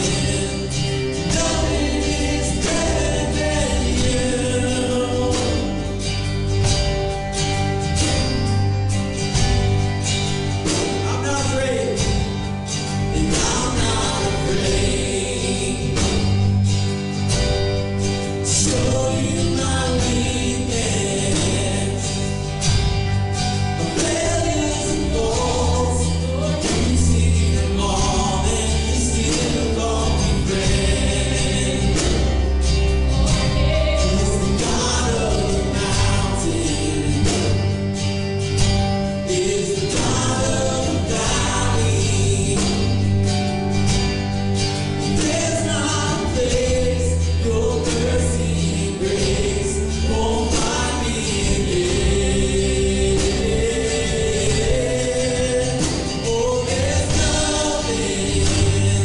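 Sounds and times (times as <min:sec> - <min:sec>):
voices singing harmony: 0:00.0 - 0:06.2, 0:10.7 - 0:17.0, 0:17.9 - 0:59.0
keyboard playing: 0:00.0 - 0:59.0
strummed acoustic guitar: 0:00.0 - 0:59.0
woman singing lead: 0:33.0 - 0:37.4.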